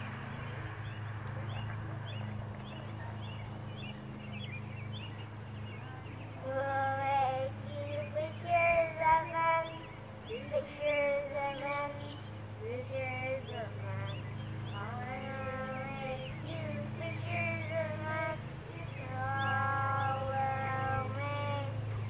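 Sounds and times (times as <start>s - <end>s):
steady low hum: 0.0s - 22.0s
faint high chirps: 11.3s - 12.4s.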